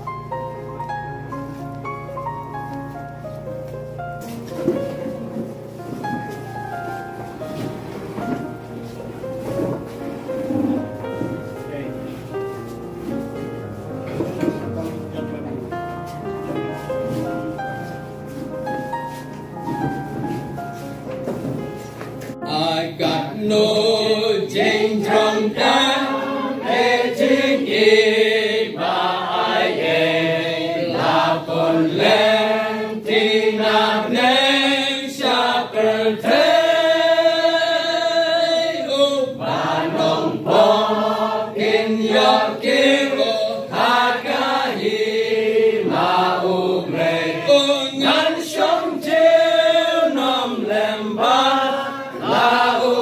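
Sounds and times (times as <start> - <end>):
congregation singing a hymn: 7.2 - 14.9, 22.2 - 53.0.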